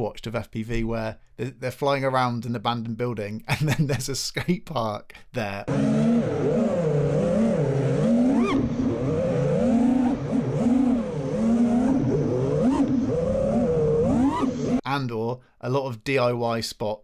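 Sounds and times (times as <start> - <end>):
drone motors whining: 5.7 - 14.8.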